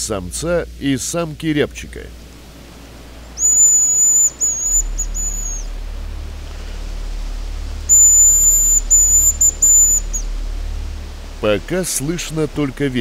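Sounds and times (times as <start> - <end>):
wind rumble on microphone: 2.1 - 13.0
high thin bird call whistles: 3.4 - 5.7, 7.9 - 10.3.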